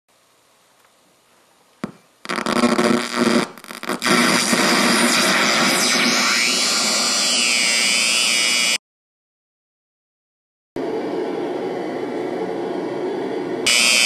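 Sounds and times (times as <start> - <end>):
harsh synth noise hiss: 2.2 - 8.8, 13.7 - 14.0.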